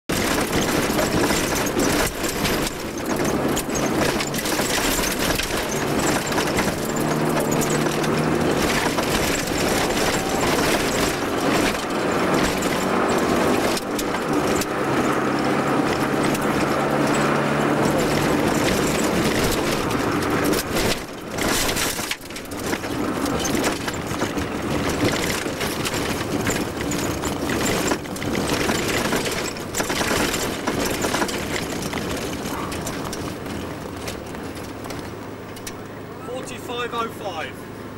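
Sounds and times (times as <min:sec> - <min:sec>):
car engine revving hard: 0:00.1 - 0:22.0
tyre and road noise: 0:00.1 - 0:37.9.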